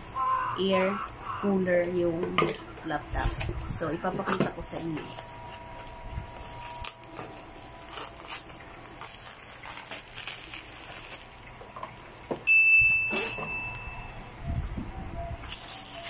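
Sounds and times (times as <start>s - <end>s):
loud steady high tone: 0.0s - 9.0s, 12.5s - 16.0s
cardboard and bubble wrap rustling: 2.8s - 13.5s, 15.4s - 16.0s.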